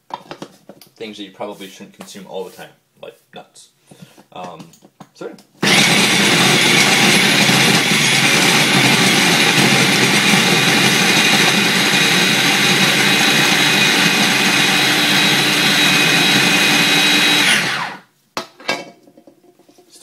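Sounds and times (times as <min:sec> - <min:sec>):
food processor motor running: 0:05.6 - 0:18.1.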